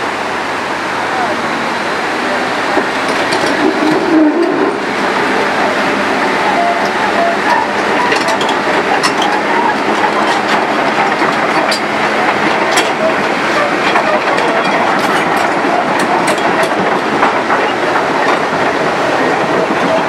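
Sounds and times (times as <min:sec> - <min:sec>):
excavator engine and hydraulics: 0:00.0 - 0:20.0
flooded river rushing: 0:00.0 - 0:20.0
metallic clicks and clanks: 0:06.5 - 0:18.7.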